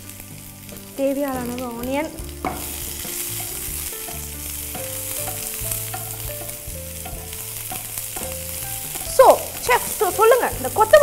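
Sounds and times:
onions sizzling in hot oil: 0.0 - 11.0
wooden spatula scraping: 2.4 - 10.8.

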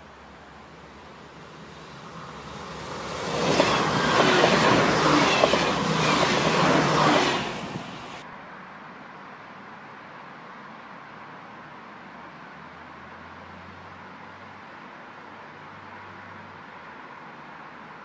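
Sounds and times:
railcar rumbling past: 0.0 - 8.2
wheels clattering over rails: 2.7 - 8.2.

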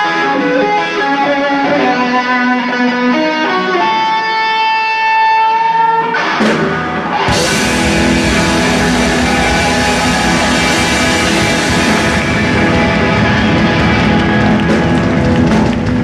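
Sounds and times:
boogie rock band playing: 6.0 - 16.0
held electric guitar note: 7.3 - 14.2.

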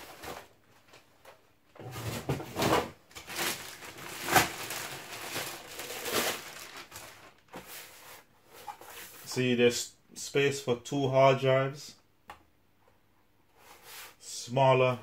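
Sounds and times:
plastic bag rustling: 0.0 - 1.0, 1.9 - 8.2.

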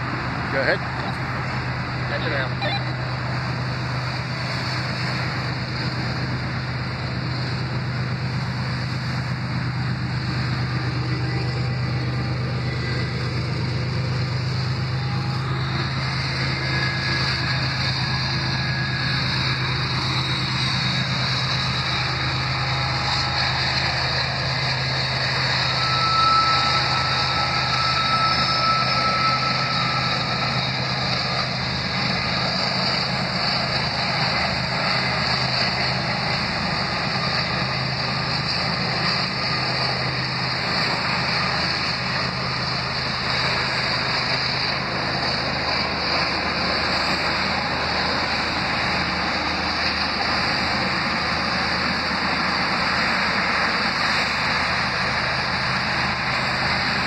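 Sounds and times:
freight train rumbling past: 0.0 - 57.0
high squeal: 0.0 - 57.0
road traffic: 0.0 - 57.0.

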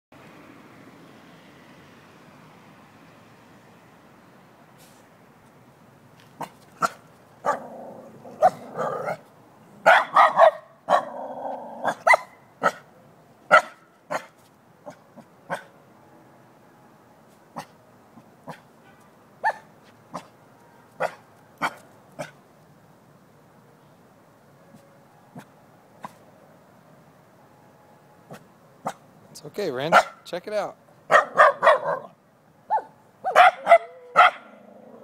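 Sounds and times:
dog barking: 6.4 - 7.8, 8.4 - 9.2, 9.8 - 11.2, 11.8 - 12.9, 13.5 - 14.3, 14.9 - 15.7, 19.4 - 20.3, 21.0 - 22.4, 29.9 - 30.2, 31.1 - 34.6
dog growling: 7.5 - 9.2, 11.0 - 12.0, 34.5 - 35.0.

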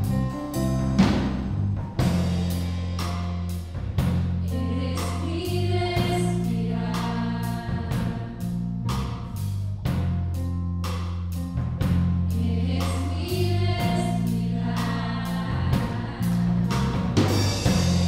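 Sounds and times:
drum kit beat with cymbals: 0.0 - 18.0
keyboard with bass notes: 0.0 - 18.0
woman singing into microphone: 4.5 - 7.9.

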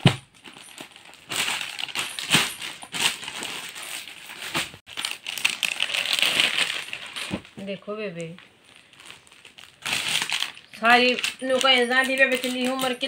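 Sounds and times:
plastic packaging crinkling: 0.1 - 13.0.

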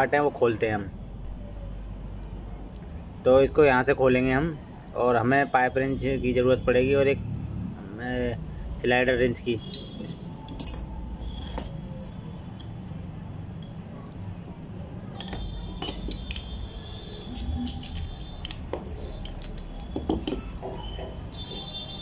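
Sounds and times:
metallic clinks of wrenches: 9.6 - 13.8, 15.1 - 21.9.

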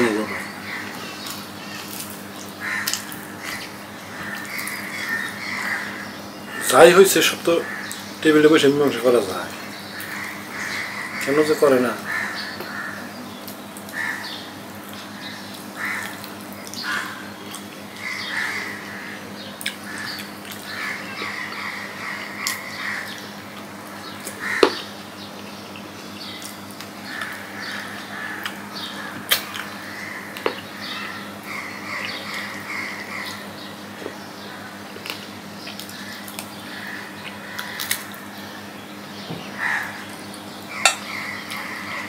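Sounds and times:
steady low hum: 0.0 - 42.0
crows cawing: 2.6 - 13.2, 13.9 - 14.5, 15.2 - 16.2, 16.8 - 24.9, 27.0 - 33.5, 35.9 - 38.4, 39.6 - 40.1, 40.7 - 42.0.

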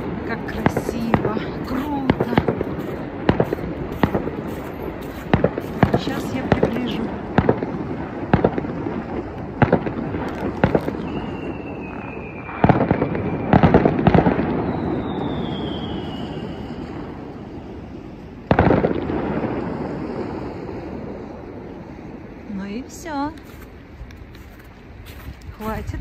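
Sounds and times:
echoing firework bangs: 0.0 - 21.7
falling firework whistles: 10.8 - 17.6.

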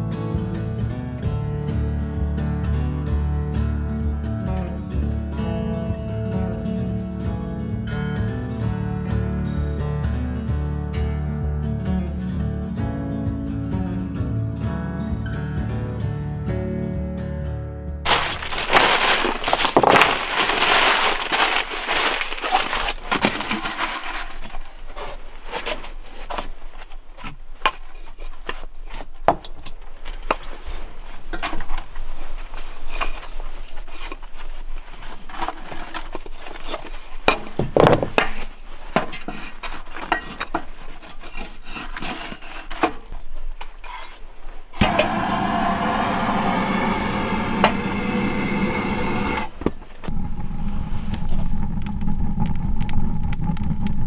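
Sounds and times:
paper crumpling: 18.1 - 26.2
propane torch hissing: 44.8 - 54.0.

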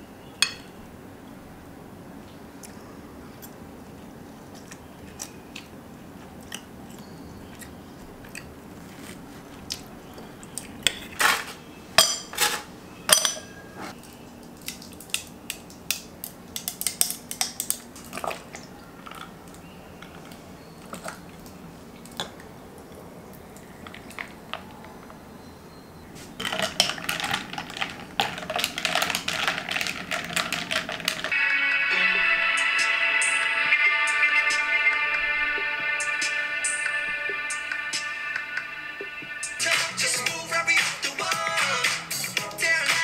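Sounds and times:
ice cubes clinking into glass pitcher: 26.4 - 31.3.

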